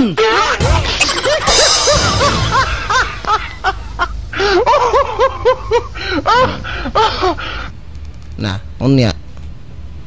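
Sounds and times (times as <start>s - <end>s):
person laughing in high chuckles: 0.9s - 7.3s.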